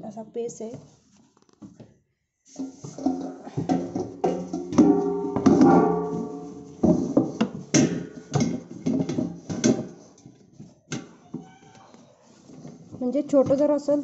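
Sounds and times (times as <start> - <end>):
metal container clanking: 2.5 - 10.3.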